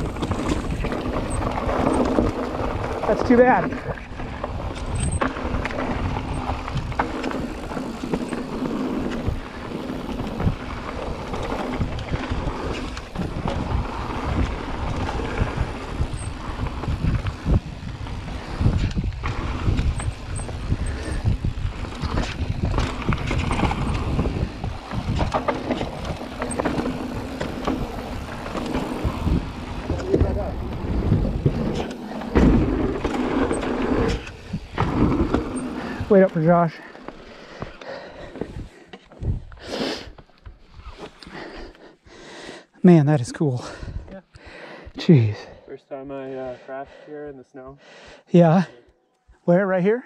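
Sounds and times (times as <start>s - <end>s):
wind rushing over microphone: 0.0s - 36.4s, 38.4s - 39.7s
bike knocking and rattling: 0.0s - 39.5s
bike tyres rolling over dirt: 0.0s - 41.7s.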